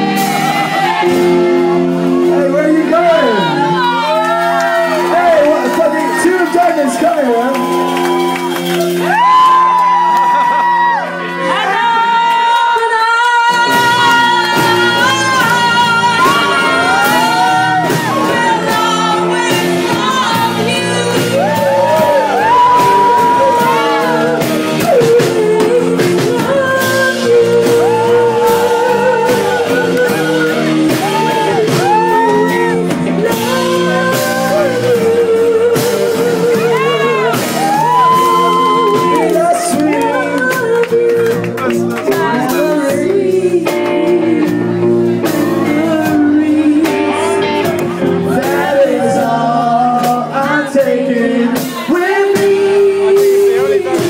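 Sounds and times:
acoustic guitar: 0:00.0 - 0:54.0
drums: 0:00.0 - 0:54.0
woman singing with vibrato: 0:11.3 - 0:41.5, 0:42.1 - 0:53.6.

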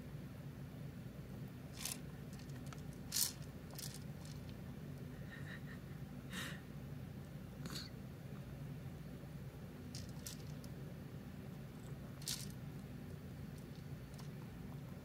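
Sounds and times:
steady low hum: 0:00.0 - 0:15.0
rabbit rustling in hay: 0:01.7 - 0:04.6, 0:09.9 - 0:10.6, 0:12.2 - 0:12.6.

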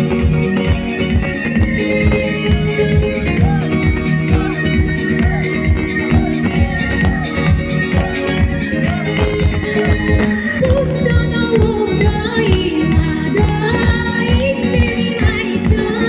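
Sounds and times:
live band playing folk dance tune: 0:00.0 - 0:16.0
woman singing: 0:10.4 - 0:16.0.

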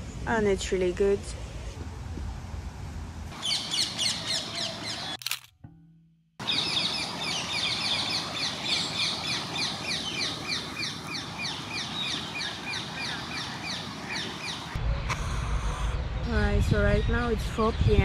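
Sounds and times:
parakeets calling shrilly: 0:03.4 - 0:05.2, 0:06.4 - 0:14.8.

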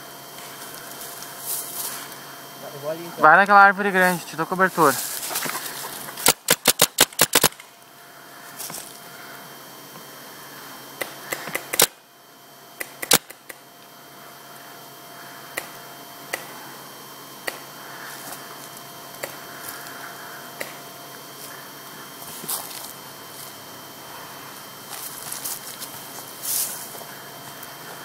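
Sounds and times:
paintball markers firing: 0:06.2 - 0:07.6, 0:12.8 - 0:13.6.

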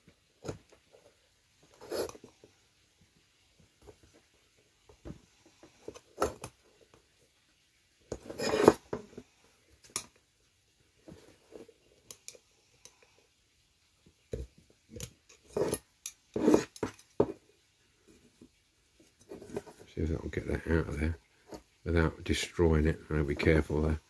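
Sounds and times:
screwdriver scraping metal: 0:01.8 - 0:02.2, 0:08.3 - 0:08.8, 0:15.5 - 0:16.9.

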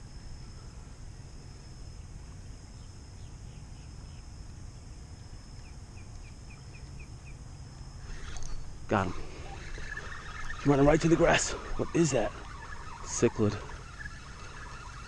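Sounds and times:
steady low rumble: 0:00.0 - 0:15.0
bird chirping: 0:08.0 - 0:15.0.

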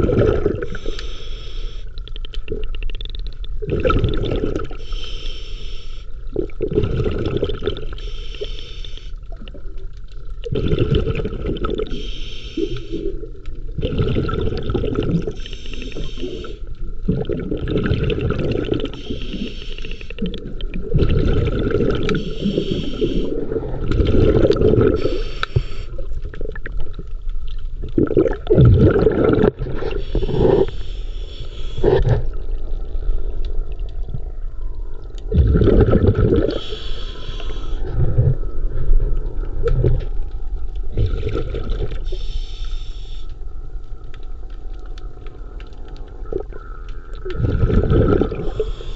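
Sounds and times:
gurgling exhaled bubbles: 0:00.0 - 0:01.0, 0:01.9 - 0:04.9, 0:06.2 - 0:08.1, 0:09.2 - 0:12.0, 0:12.6 - 0:42.4, 0:43.8 - 0:48.9
regulator hissing inhale: 0:00.6 - 0:01.9, 0:04.8 - 0:06.1, 0:08.0 - 0:09.2, 0:11.9 - 0:13.1, 0:15.4 - 0:16.7, 0:18.9 - 0:20.2, 0:22.2 - 0:23.4, 0:25.0 - 0:26.0, 0:29.9 - 0:32.0, 0:36.5 - 0:37.9, 0:42.0 - 0:43.3, 0:48.4 - 0:48.9.

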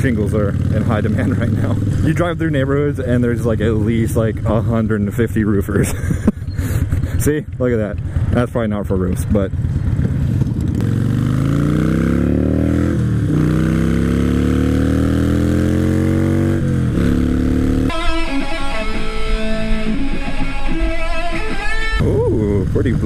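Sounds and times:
motorcycle engine accelerating: 0:00.0 - 0:23.0
guitar music: 0:17.0 - 0:22.0.

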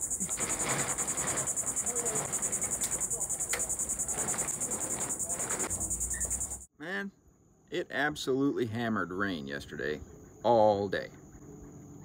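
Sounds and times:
plastic tarp crinkling: 0:00.0 - 0:06.6
insect chorus: 0:00.0 - 0:06.7, 0:08.8 - 0:12.0.

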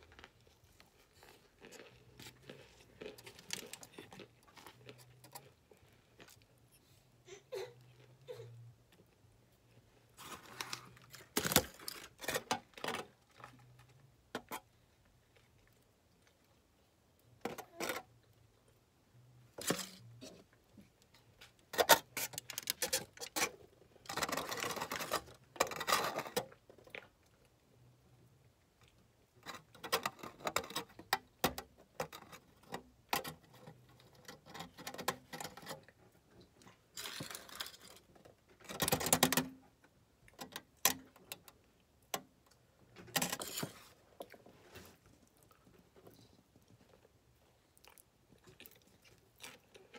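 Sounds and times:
aluminum foil crinkling: 0:00.0 - 0:05.5, 0:10.2 - 0:13.6, 0:21.8 - 0:26.5
cornstarch crunching and squeaking: 0:00.0 - 0:06.4.

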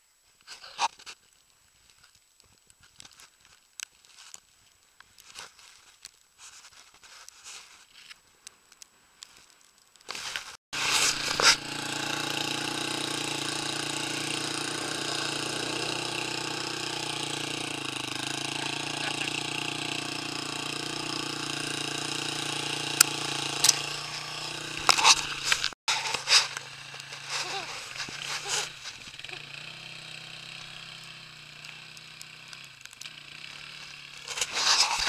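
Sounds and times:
quad bike engine idling: 0:10.8 - 0:34.9.

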